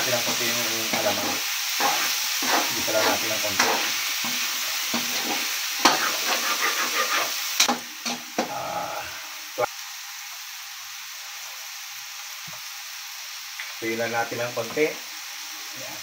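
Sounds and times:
food sizzling in a wok: 0:00.0 - 0:16.0
metal spatula scraping a pan: 0:00.2 - 0:08.2.

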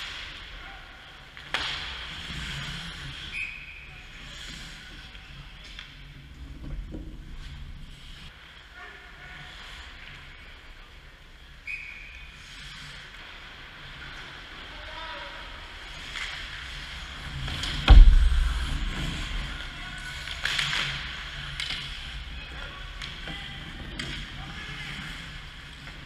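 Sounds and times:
skates scraping ice: 0:00.0 - 0:26.0
loud thump at net: 0:17.9 - 0:18.9
short low rumble: 0:17.9 - 0:19.7.

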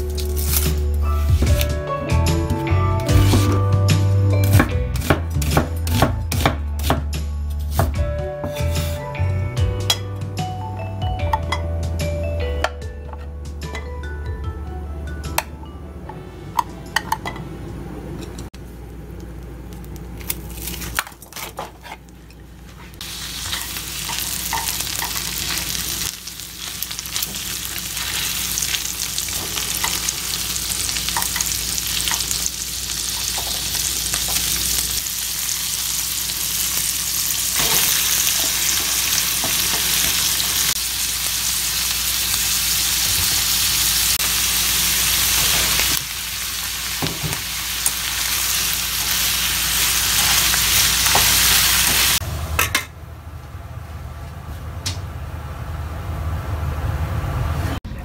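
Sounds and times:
meat sizzling in a frying pan: 0:23.0 - 0:52.2.

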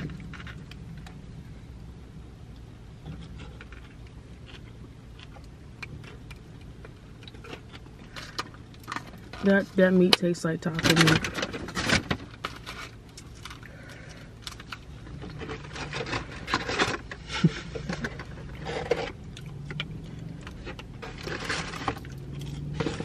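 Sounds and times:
low steady hum: 0:00.0 - 0:23.0
paper bag and wrappers rustling: 0:20.6 - 0:23.0.

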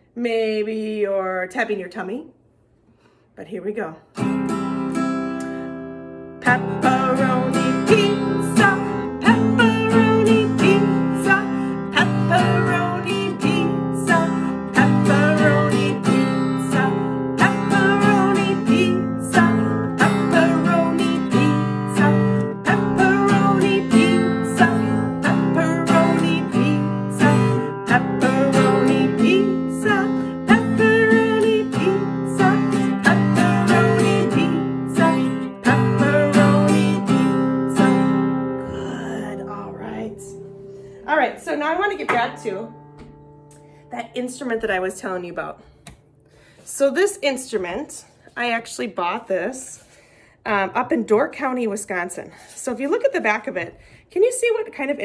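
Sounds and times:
acoustic guitar strummed: 0:04.2 - 0:44.9
woman chanting: 0:38.7 - 0:40.4.

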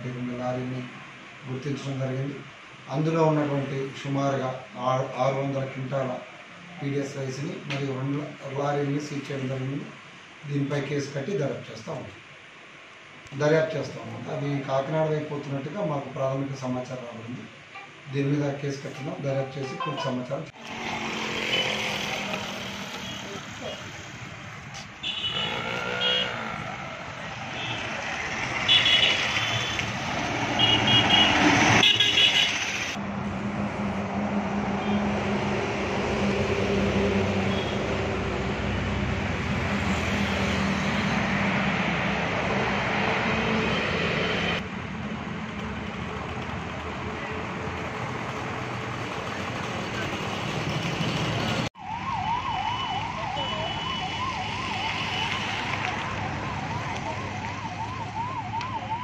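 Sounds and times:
vehicle engine and road noise: 0:17.0 - 0:59.0
siren wailing: 0:51.7 - 0:59.0.

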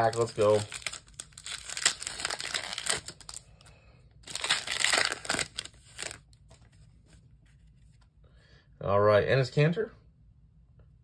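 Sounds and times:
plastic wrapper crinkling: 0:00.0 - 0:06.8.

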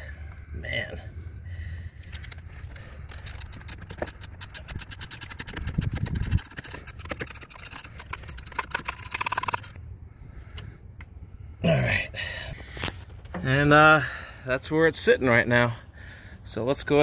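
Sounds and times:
hand ratchet clicking: 0:02.0 - 0:09.8.

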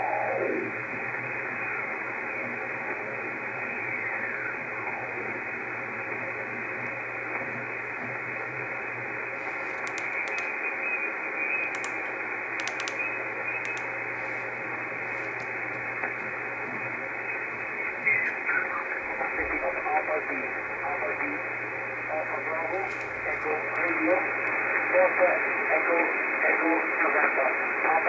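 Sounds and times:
radio receiver hiss: 0:00.0 - 0:28.0
faint clicks: 0:09.7 - 0:10.5, 0:11.7 - 0:12.0, 0:12.6 - 0:13.0, 0:13.6 - 0:13.9.

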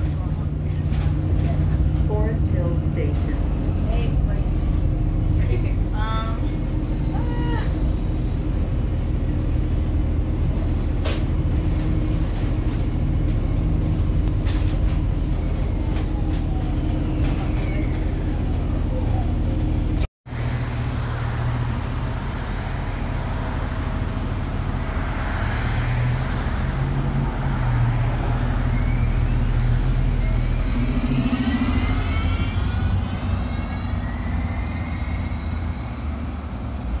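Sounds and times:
bus engine under load: 0:00.0 - 0:37.0
rising whine: 0:26.6 - 0:37.0.

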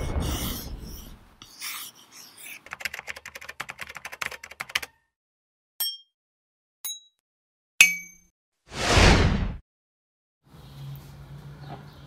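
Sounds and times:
pen scratching on paper: 0:00.0 - 0:03.8
rapid keyboard typing: 0:02.6 - 0:05.0.

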